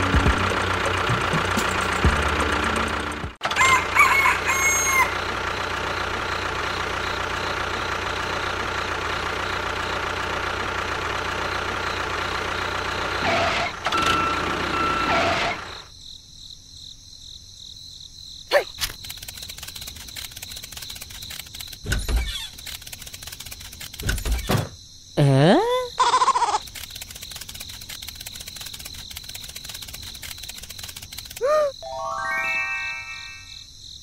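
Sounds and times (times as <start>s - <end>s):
model tractor engine running: 0.0s - 4.0s, 4.9s - 15.8s, 18.8s - 24.4s, 26.4s - 31.4s
brief tone: 13.2s - 15.3s.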